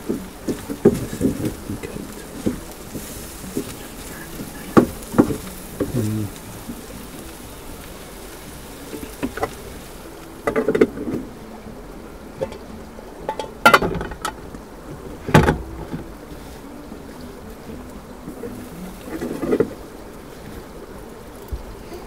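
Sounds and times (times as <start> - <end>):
food sizzling in a pan: 0.0 - 22.0
pan and lid clattering: 12.4 - 14.4.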